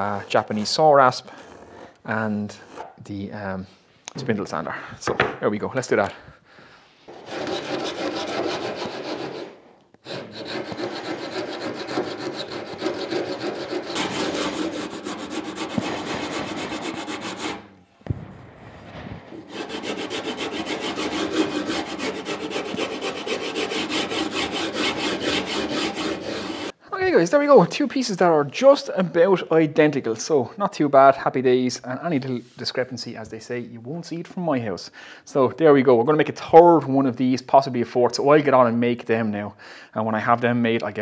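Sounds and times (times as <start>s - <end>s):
saw rasp filing wood: 7.1s - 17.7s, 19.3s - 26.8s.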